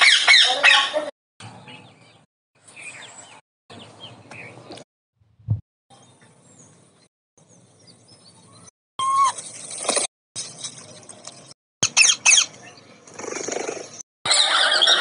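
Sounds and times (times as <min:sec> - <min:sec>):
parrot squawking: 0:00.0 - 0:01.0, 0:11.8 - 0:12.5, 0:14.3 - 0:15.0.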